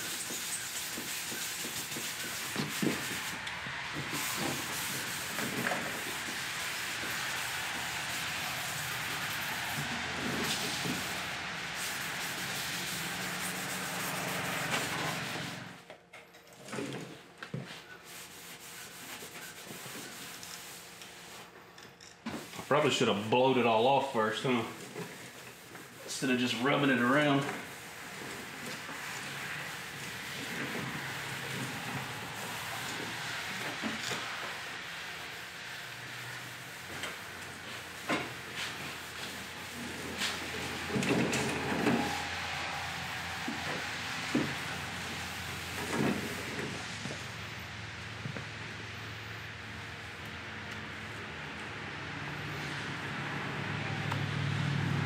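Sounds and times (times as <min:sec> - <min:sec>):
abrasive pad scrubbing paint: 0:00.0 - 0:15.7, 0:18.1 - 0:21.4, 0:22.4 - 0:46.8
rubbing and handling sounds: 0:00.0 - 0:15.7, 0:17.6 - 0:21.6, 0:22.2 - 0:47.2.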